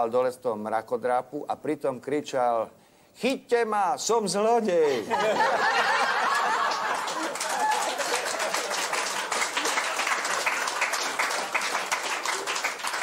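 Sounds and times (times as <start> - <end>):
audience laughing: 4.9 - 9.0
audience applauding: 5.7 - 13.0.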